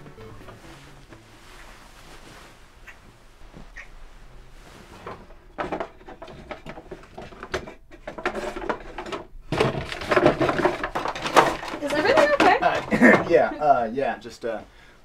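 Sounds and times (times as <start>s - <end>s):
rummaging through plastic toys: 5.0s - 13.5s.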